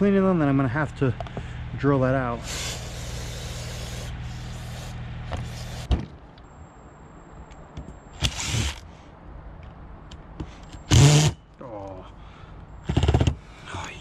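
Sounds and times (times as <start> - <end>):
impact driver bursts: 2.4 - 6.0, 8.2 - 8.9, 10.8 - 11.4.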